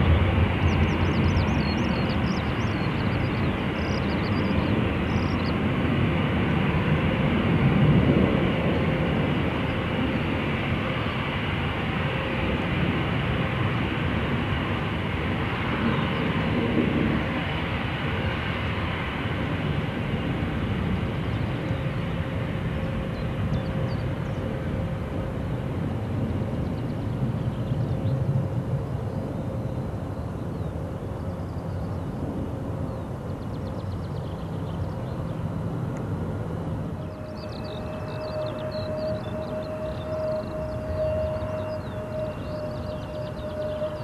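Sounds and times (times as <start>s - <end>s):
jet aircraft taxiing: 0.0s - 44.0s.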